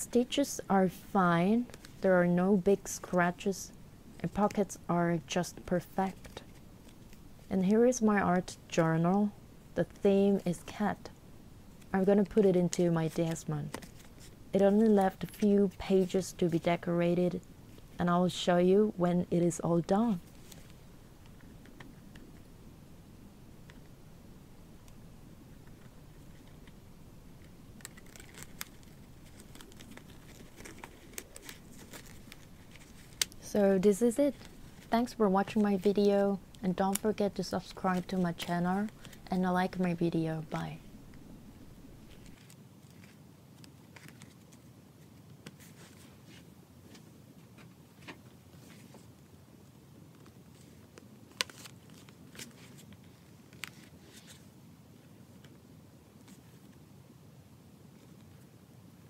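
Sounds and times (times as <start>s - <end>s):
paper pages rustling: 1.6s - 2.0s, 5.8s - 7.2s, 11.7s - 18.0s, 19.9s - 22.3s, 25.5s - 26.8s, 27.4s - 40.7s, 42.0s - 49.1s, 50.1s - 54.5s
leather and paper rustling: 27.4s - 33.4s.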